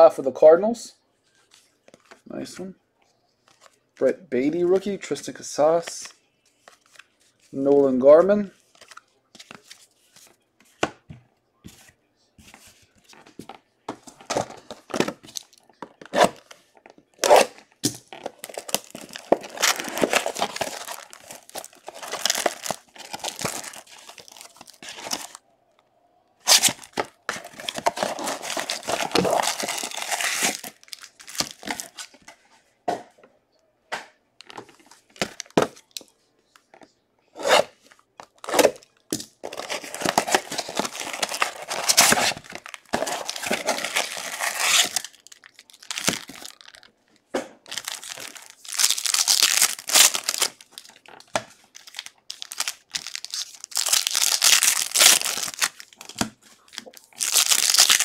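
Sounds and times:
plastic shrink-wrap rustling: 18.2s - 25.4s, 26.5s - 32.1s, 39.4s - 46.9s, 47.7s - 58.0s.

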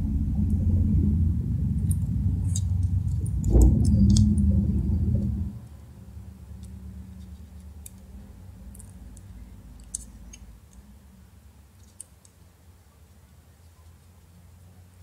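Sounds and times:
low steady hum: 0.0s - 15.0s
small parts clicking into place: 8.7s - 10.9s, 11.8s - 12.4s.

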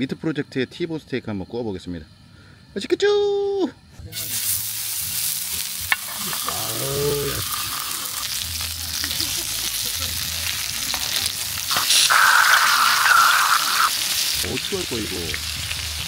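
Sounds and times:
steak sizzling on grill pan: 4.2s - 16.0s.

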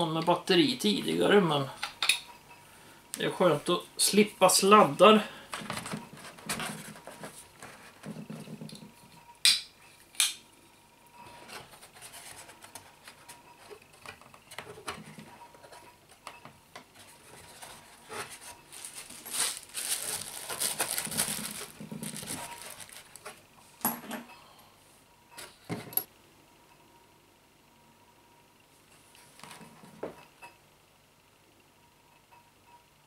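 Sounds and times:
rubbing and shuffling: 5.5s - 8.7s, 11.3s - 16.2s, 16.8s - 23.5s.

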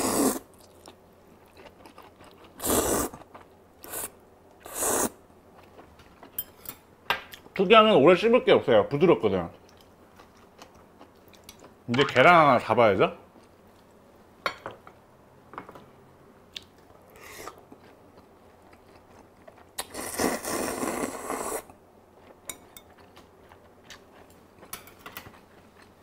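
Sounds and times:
person slurping noodles: 0.0s - 0.4s, 2.6s - 3.2s, 4.7s - 5.2s, 19.8s - 21.7s
chewing: 0.6s - 3.6s, 16.6s - 19.9s, 22.2s - 26.0s.

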